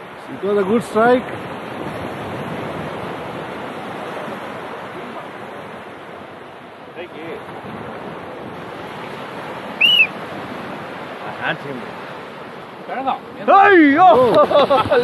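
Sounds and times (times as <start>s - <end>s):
surf breaking on beach: 0.0s - 15.0s
loud high-pitched chirp: 9.8s - 10.1s.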